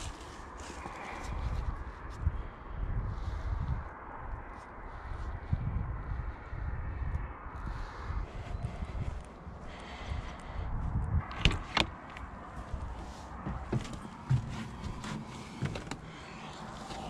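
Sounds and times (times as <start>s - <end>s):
door latch clicks: 11.3s - 12.0s
footsteps at doorway: 12.1s - 17.0s.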